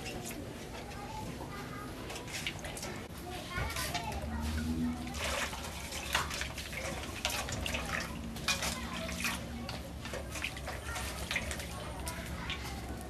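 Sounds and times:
water splashing in a basin: 2.1 - 13.0.

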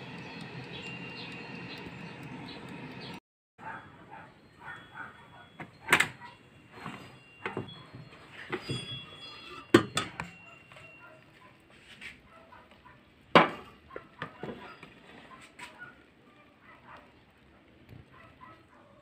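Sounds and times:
air fryer basket clattering: 5.6 - 10.4, 13.3 - 14.7.

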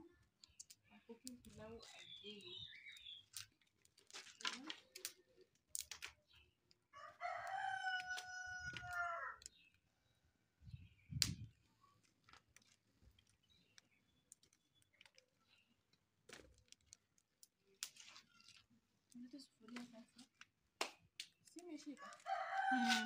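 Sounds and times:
firewood sticks clicking and knocking: 0.2 - 9.9, 11.1 - 23.0
rooster crowing: 7.0 - 9.4, 22.0 - 23.0.

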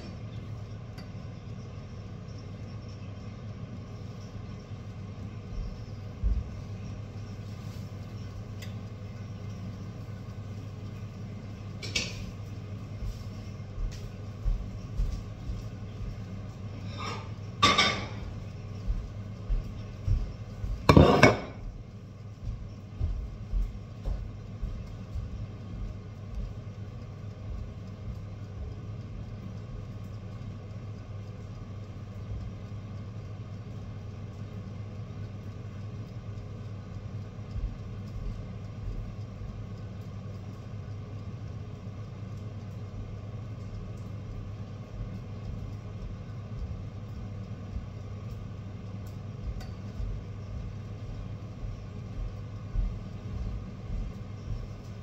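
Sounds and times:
steady low hum: 0.0 - 55.0
pans and utensils clattering: 16.9 - 18.2, 20.9 - 21.6.

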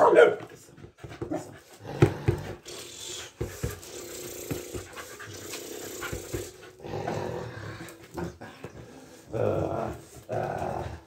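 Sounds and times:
dog panting: 0.4 - 6.9.

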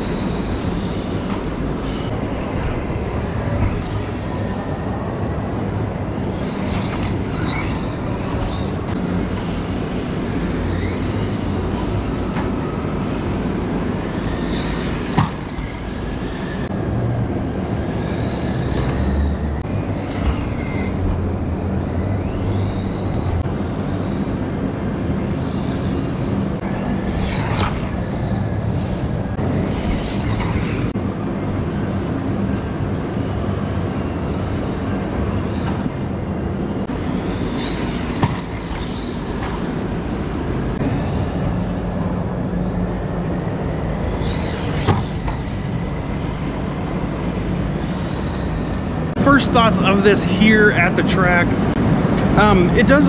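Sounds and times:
toy truck electric motor whining: 17.6 - 23.4.

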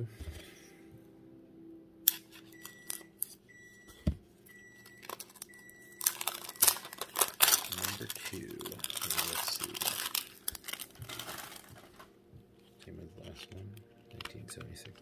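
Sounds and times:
wrapper crinkling and tearing: 4.9 - 15.0.

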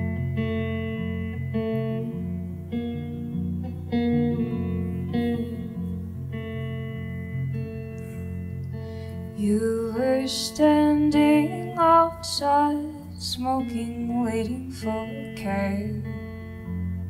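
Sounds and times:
guitar: 0.0 - 17.0
woman singing a slow song: 9.2 - 16.4.

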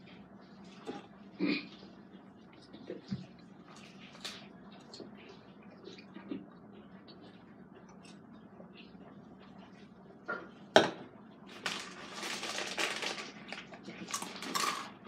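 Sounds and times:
foil snack bag crinkling: 11.5 - 15.0.

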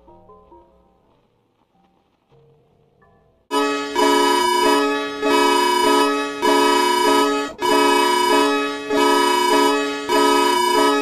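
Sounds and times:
electronic alarm chord: 3.5 - 11.0.

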